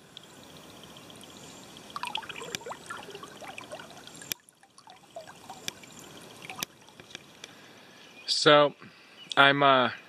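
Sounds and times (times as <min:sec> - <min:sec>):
water trickling and gurgling: 0:00.0 - 0:07.8.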